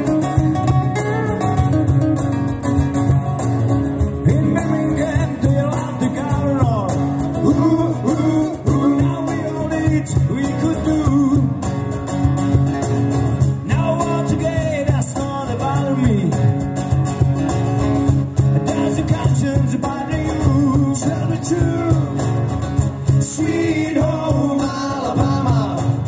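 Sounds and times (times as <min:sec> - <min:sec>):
drums: 0:00.0 - 0:26.0
strummed acoustic guitars: 0:00.0 - 0:26.0
person singing: 0:04.3 - 0:11.6, 0:23.2 - 0:26.0.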